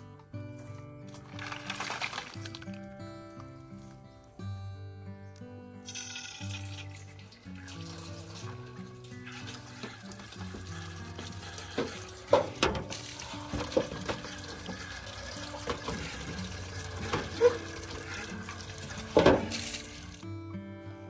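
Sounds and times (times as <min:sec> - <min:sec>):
water pouring into a barrel: 0:01.1 - 0:02.9, 0:05.9 - 0:20.3
tap water running into a tray: 0:01.2 - 0:02.8, 0:05.9 - 0:20.3.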